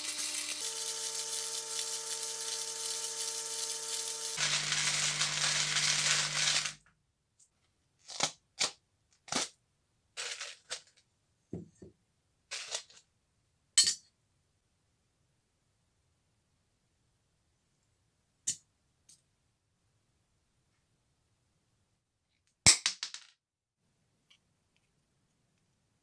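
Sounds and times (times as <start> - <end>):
drill motor hum: 0.0 - 6.8.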